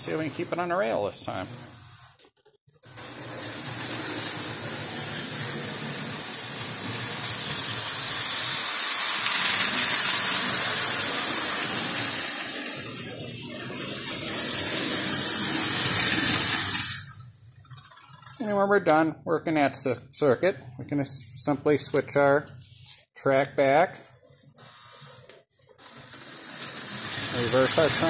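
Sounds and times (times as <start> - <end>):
model train running on metal rails: 2.9 - 17.2, 25.8 - 28.0.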